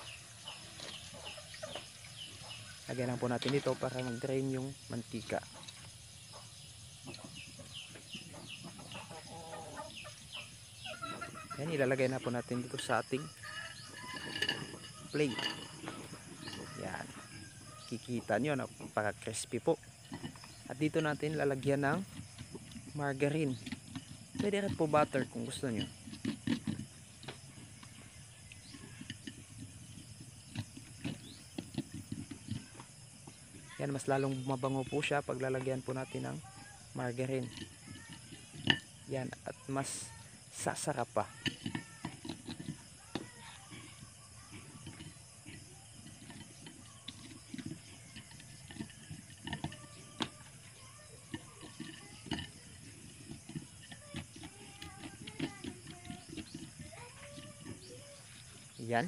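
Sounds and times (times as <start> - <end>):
metal spoon scraping ceramic plate: 12.8 - 18.0.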